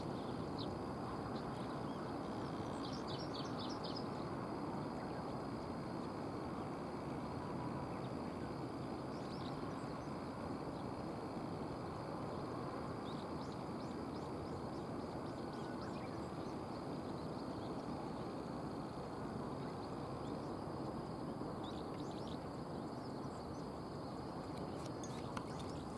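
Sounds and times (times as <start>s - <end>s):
small birds chirping: 21.6s - 25.9s.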